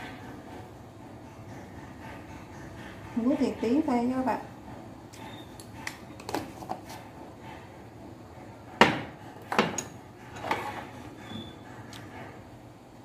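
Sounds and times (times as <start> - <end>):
jars and bottles clattering on counter: 8.8 - 10.9.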